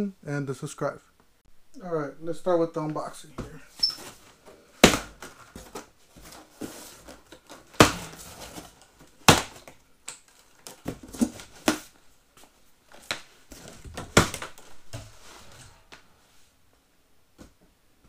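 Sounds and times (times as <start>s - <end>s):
strapping rustling against cardboard: 3.8s - 9.7s.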